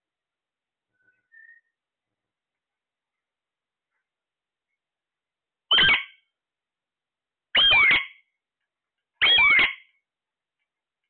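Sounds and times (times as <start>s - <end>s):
parakeet screeching: 5.7s - 6.2s, 7.5s - 8.2s, 9.2s - 9.9s.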